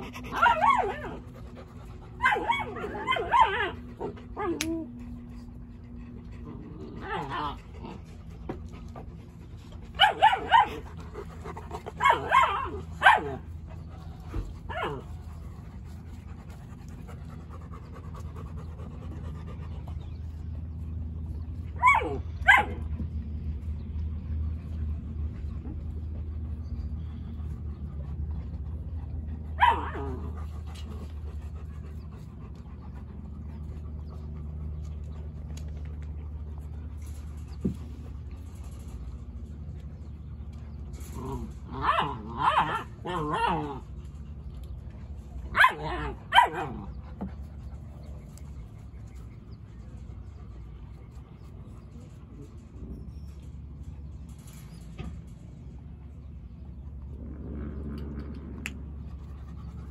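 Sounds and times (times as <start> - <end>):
dogs barking: 0.0 - 4.9, 9.8 - 15.4, 21.6 - 23.0, 29.4 - 35.0, 41.0 - 44.0, 45.3 - 48.0
steady low hum: 0.0 - 59.9.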